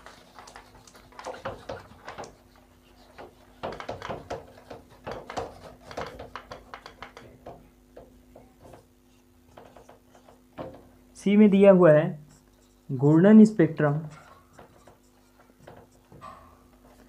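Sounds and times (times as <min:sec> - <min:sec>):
eraser wiping whiteboard: 0:00.0 - 0:06.5
faint steady hum: 0:00.0 - 0:17.0.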